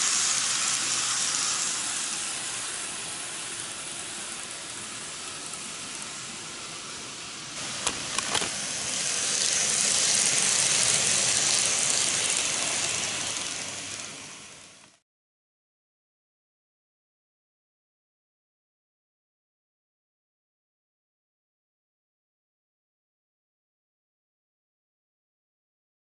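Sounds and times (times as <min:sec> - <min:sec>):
model train running on track: 0:00.0 - 0:15.0.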